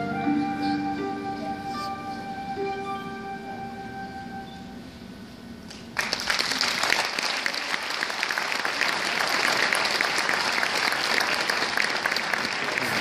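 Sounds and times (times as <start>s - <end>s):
held song notes: 0.0s - 5.6s
audience applause: 6.0s - 13.0s.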